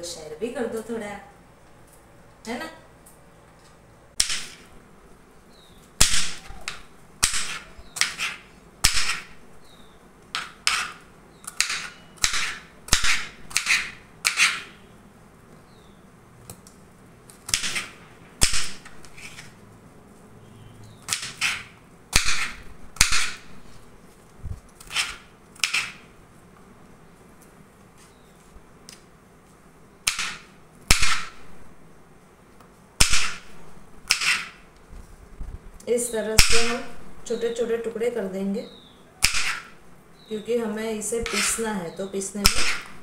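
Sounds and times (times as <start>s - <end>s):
knife chopping on wooden board: 6.0s - 9.4s, 10.4s - 14.7s, 17.5s - 19.5s, 21.1s - 23.4s, 24.8s - 26.0s, 30.1s - 31.4s, 34.1s - 34.6s, 39.2s - 39.7s, 41.2s - 41.6s, 42.4s - 43.0s.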